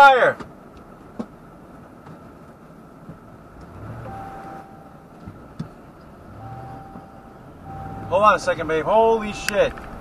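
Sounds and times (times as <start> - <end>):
low cabin rumble: 0.1 - 10.0
electronic beeps: 4.1 - 4.9, 6.4 - 8.3, 9.2 - 10.0.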